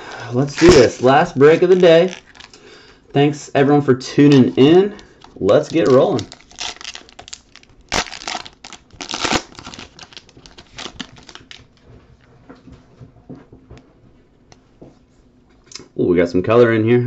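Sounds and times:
cards rustling: 0.0 - 2.6, 4.2 - 11.7
foil wrapper tearing: 0.0 - 2.6, 4.3 - 11.6.

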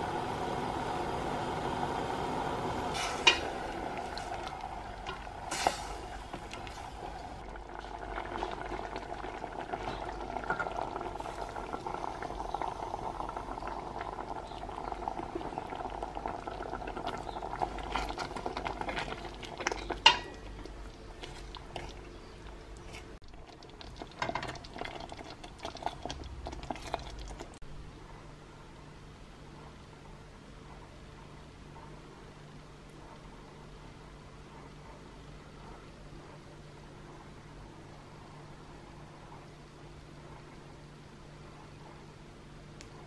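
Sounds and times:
pot simmering and bubbling: 0.0 - 27.7, 32.9 - 43.0
wooden spoon stirring: 16.9 - 27.6.

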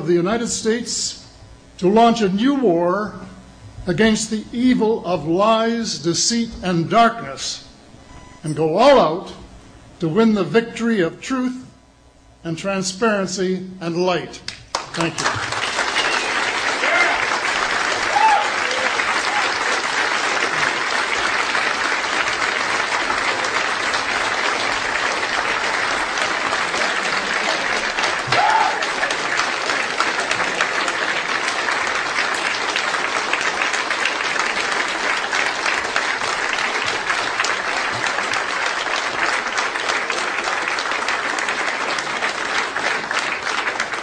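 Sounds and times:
audience applauding: 14.7 - 44.0
person calling out: 28.2 - 28.8.

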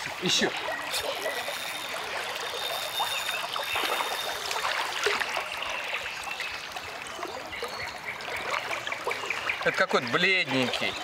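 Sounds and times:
river water running: 0.0 - 11.0
small water splashes: 0.0 - 11.0.

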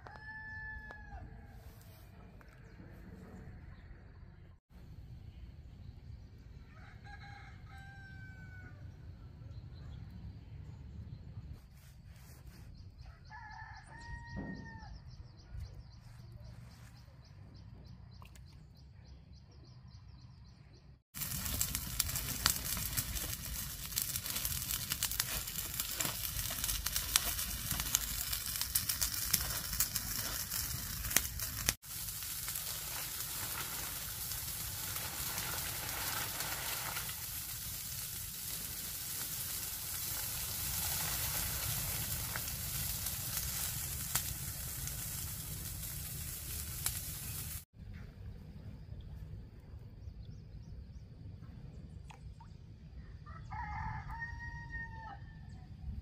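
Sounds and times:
leaves burning crackling and popping: 21.1 - 47.7.

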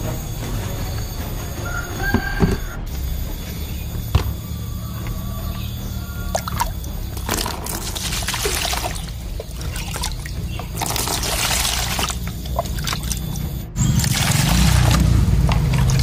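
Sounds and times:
water pouring into bucket: 6.3 - 16.0.

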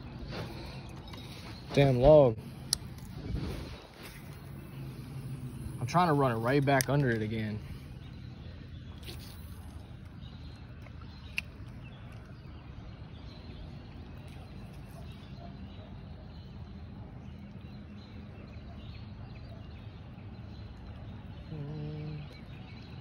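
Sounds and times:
wind rumbling on microphone: 1.5 - 6.0
faint bird calls: 21.2 - 23.0.

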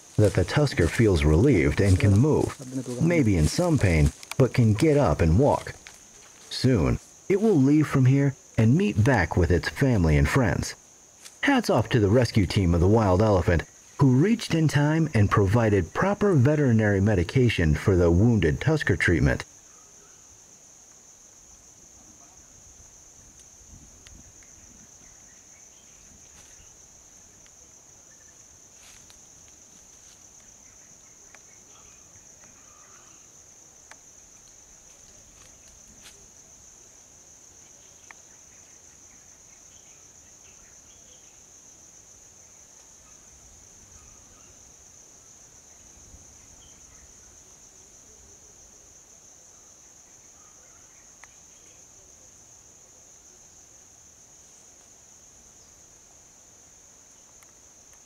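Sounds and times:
insects droning: 0.0 - 58.0
faint ticks and snaps: 4.1 - 4.4, 23.3 - 24.6, 27.4 - 27.6, 31.2 - 31.6, 33.8 - 36.2, 38.0 - 38.2, 51.2 - 51.4, 57.2 - 58.0.

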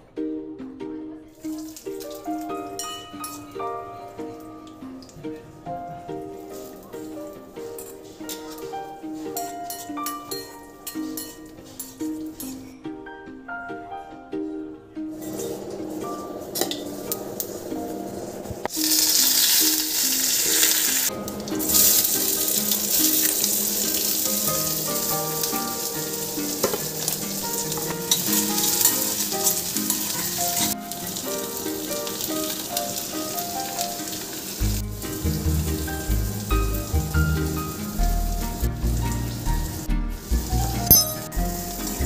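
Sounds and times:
soft plucked background music: 0.0 - 42.0
onions sizzling in hot oil: 18.6 - 42.0.

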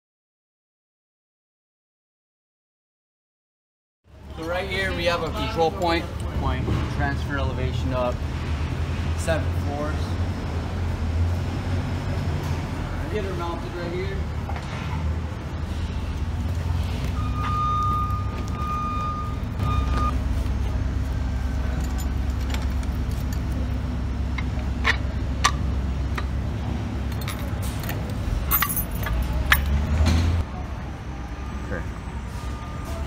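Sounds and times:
metal clicks and clatter: 21.7 - 23.7, 27.1 - 29.9.

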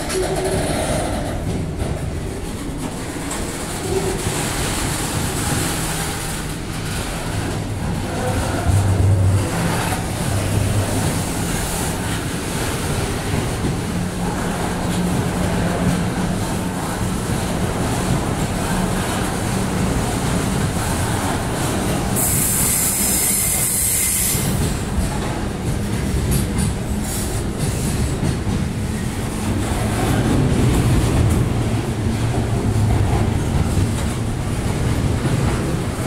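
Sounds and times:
freight train wheels rumbling: 0.0 - 36.0.

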